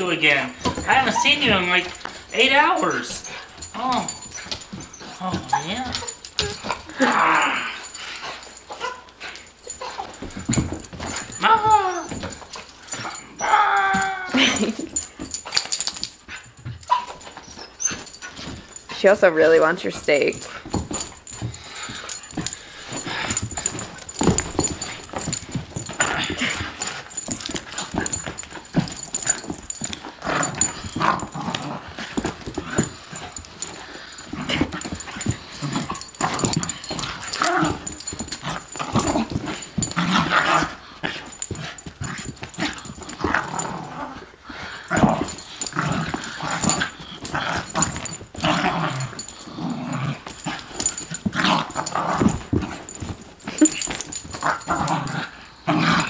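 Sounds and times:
puppy whining and yipping: 0:00.6 - 0:19.0, 0:20.6 - 0:44.2.

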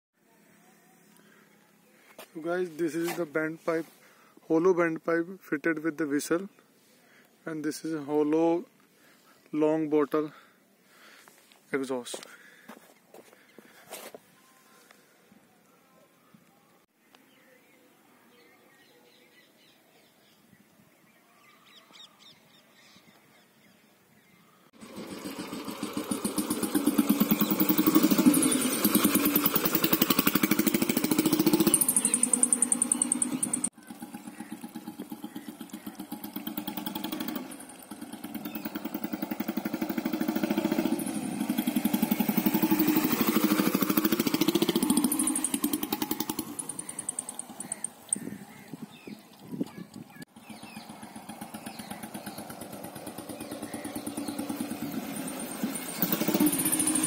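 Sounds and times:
birds calling: 0:06.2 - 0:15.1, 0:16.2 - 0:57.0
motorcycle engine exhaust beat: 0:24.8 - 0:48.7, 0:50.1 - 0:57.0
short bird chirps: 0:31.5 - 0:36.1.

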